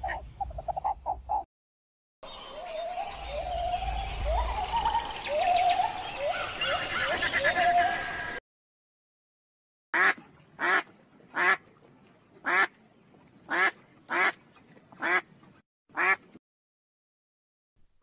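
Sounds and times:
duck quacking: 10.0s - 11.6s, 12.4s - 12.7s, 13.5s - 14.4s, 15.0s - 15.3s, 16.0s - 16.4s.

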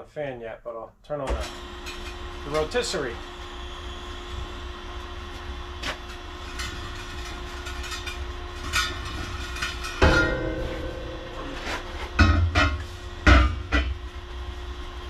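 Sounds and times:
machine low hum: 1.1s - 15.0s
loud metal clank: 8.8s - 14.0s.

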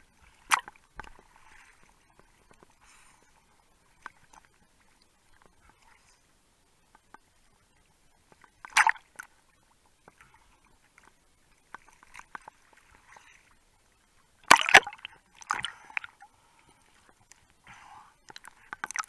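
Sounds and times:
sea water splashing: 0.0s - 6.4s, 7.4s - 19.0s
water lapping: 0.0s - 19.0s
water bubbling: 8.6s - 9.3s, 14.4s - 16.3s.

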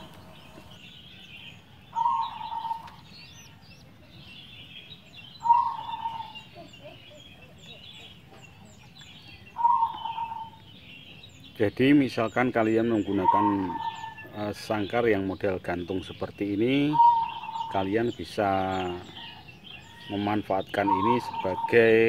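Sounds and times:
small birds twittering: 0.0s - 22.0s
dove cooing: 1.9s - 3.1s, 5.4s - 8.3s, 9.5s - 10.6s, 12.8s - 14.4s, 16.8s - 19.4s, 20.7s - 22.0s.

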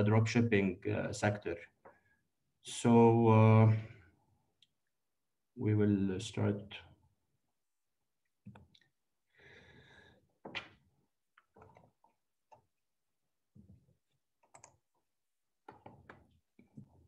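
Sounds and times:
faint clicks and soft knocks: 1.7s - 2.2s, 8.2s - 9.1s, 10.3s - 17.0s.

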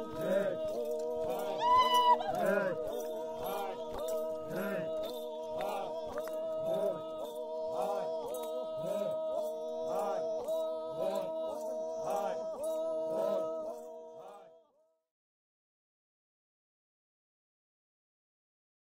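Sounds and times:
sustained drone: 0.0s - 13.8s.

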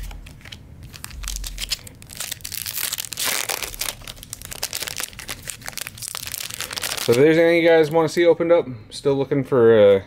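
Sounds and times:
foil wrapper crinkling: 0.0s - 8.0s.

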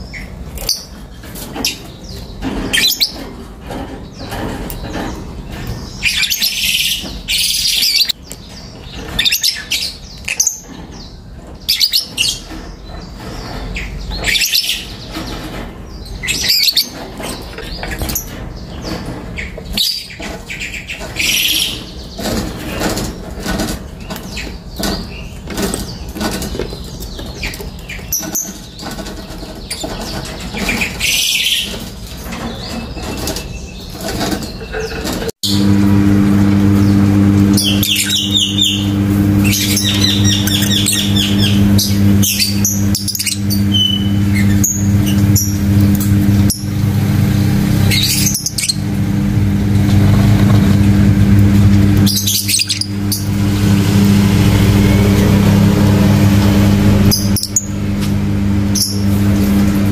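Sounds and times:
lovebirds chirping shrilly: 5.8s - 23.0s, 36.8s - 49.3s, 51.5s - 57.8s.

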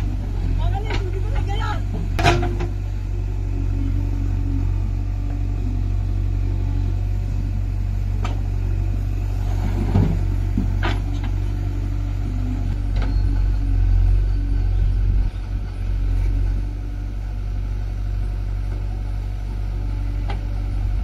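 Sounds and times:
diesel engines humming: 0.0s - 21.0s
backhoe bucket clanking: 0.7s - 2.9s, 9.6s - 11.6s.

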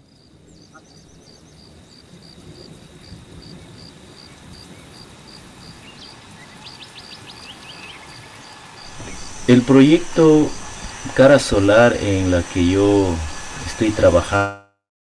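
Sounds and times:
rainforest ambient noise: 0.0s - 14.5s
insect chirping in pulses: 6.7s - 14.4s.

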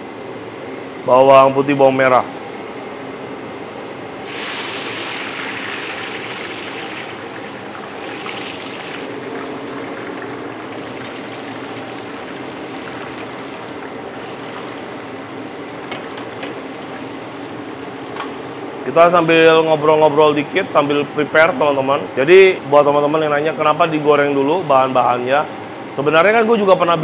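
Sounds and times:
garlic sizzling in hot oil: 4.2s - 18.5s.

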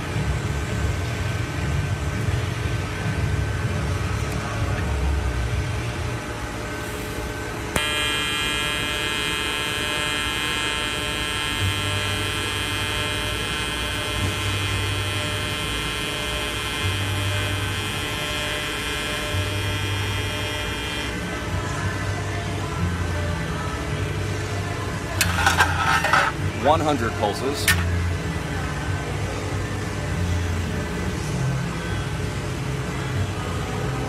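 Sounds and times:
welding arc buzzing: 7.7s - 21.6s, 25.1s - 26.8s.

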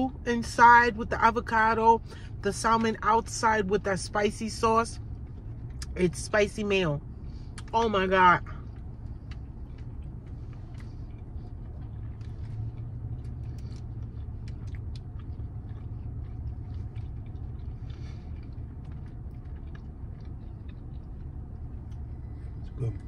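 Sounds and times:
low rumble inside a car: 0.0s - 23.0s
person chewing food: 8.6s - 23.0s.

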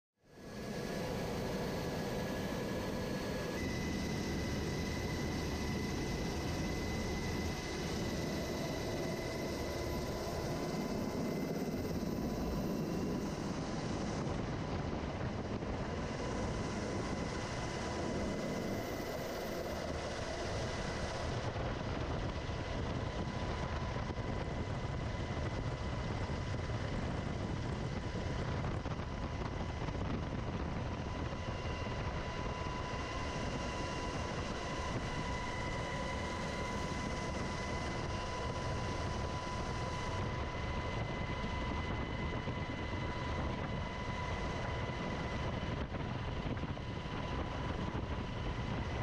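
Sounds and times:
helicopter rotor and turbine noise: 0.2s - 49.0s
high whine: 0.3s - 24.2s.

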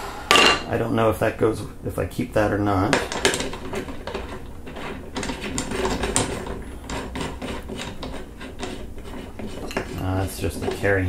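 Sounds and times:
metal parts scraping and clicking: 2.9s - 10.8s.

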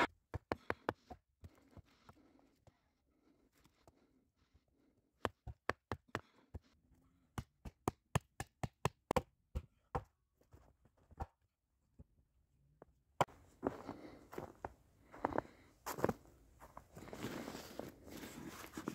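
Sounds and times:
hatchet chopping wood: 5.2s - 6.4s, 7.4s - 10.1s.

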